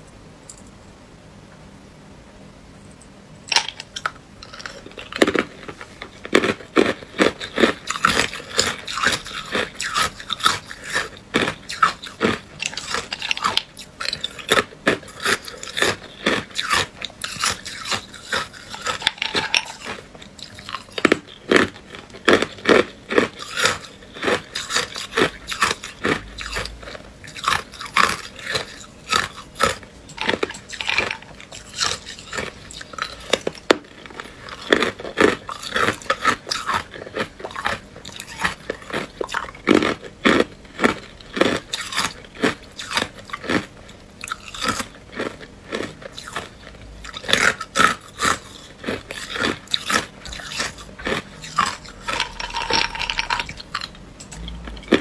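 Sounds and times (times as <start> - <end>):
ice cubes crunched by teeth: 3.5 - 55.0.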